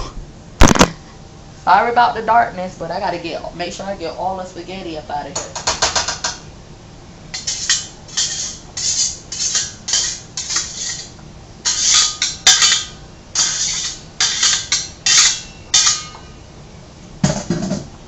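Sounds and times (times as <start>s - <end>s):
utensil scraping cookware: 7.4s - 16.3s.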